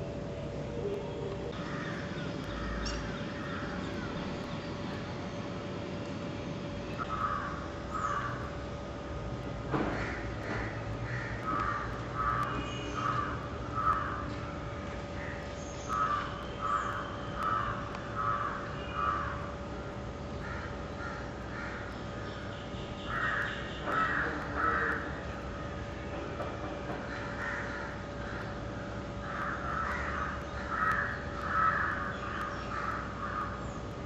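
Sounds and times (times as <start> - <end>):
crow cawing: 1.5 - 4.2, 7.0 - 8.5, 9.8 - 14.4, 15.2 - 19.6, 20.4 - 21.9, 23.0 - 25.2, 27.0 - 33.6.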